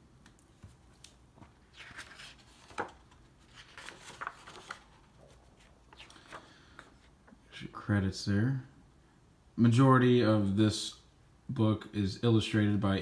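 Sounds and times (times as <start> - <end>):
pages rustling and turning: 0.3 - 7.4.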